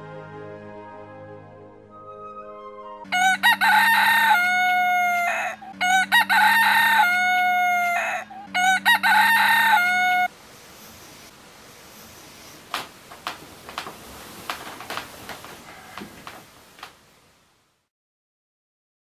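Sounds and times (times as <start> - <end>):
rooster crow alarm ringtone: 3.2 - 10.3.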